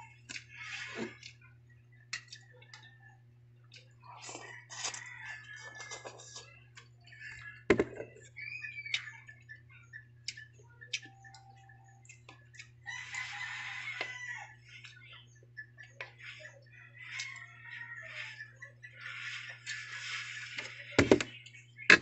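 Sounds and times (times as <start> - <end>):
bird calls: 7.0 - 22.0.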